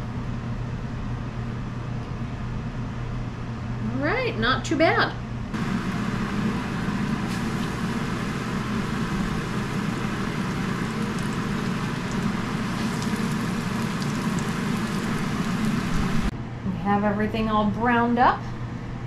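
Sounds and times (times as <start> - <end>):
steady low hum: 0.0 - 19.0
meat sizzling in a skillet: 5.7 - 16.3.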